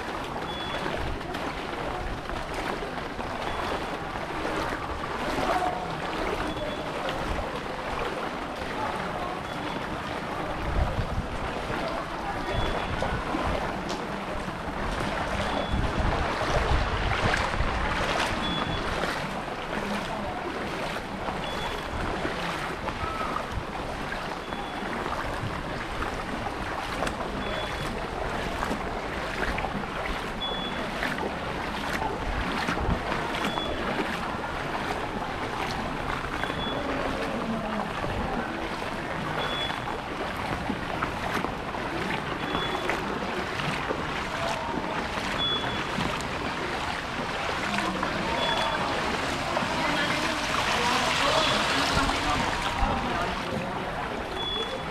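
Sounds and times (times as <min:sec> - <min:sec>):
footsteps wading through water: 0:00.0 - 0:54.9
faint short high beep: 0:12.4 - 0:13.0, 0:18.4 - 0:18.8, 0:36.4 - 0:37.0, 0:39.4 - 0:39.9, 0:42.4 - 0:42.9, 0:45.4 - 0:45.9, 0:54.3 - 0:54.9.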